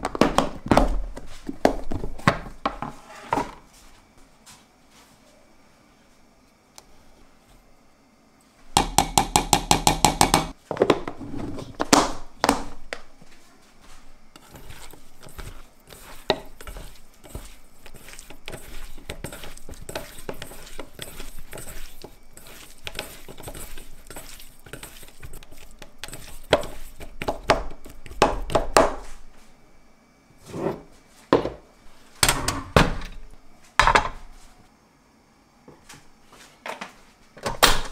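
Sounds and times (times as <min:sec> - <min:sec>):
wooden spoon knocking steel bowl: 0:08.8 - 0:10.5.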